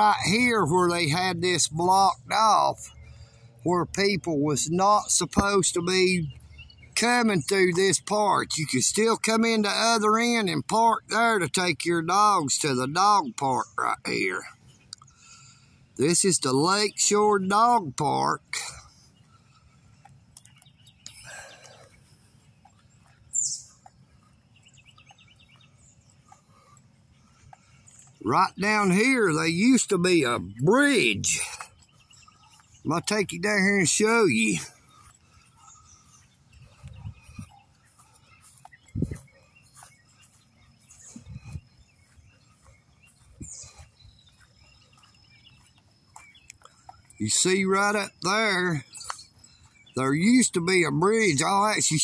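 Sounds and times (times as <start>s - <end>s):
bird chirping trill: 0.0s - 52.0s
birds calling: 0.0s - 52.0s
steady insect call: 34.2s - 52.0s.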